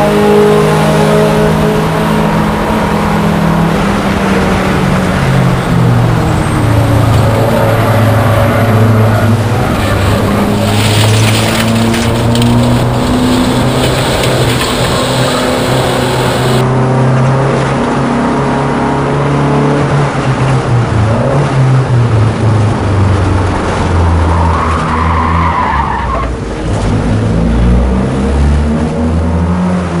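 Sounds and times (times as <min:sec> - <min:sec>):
race car engine revving: 0:00.0 - 0:30.0
tyres squealing: 0:06.4 - 0:16.6.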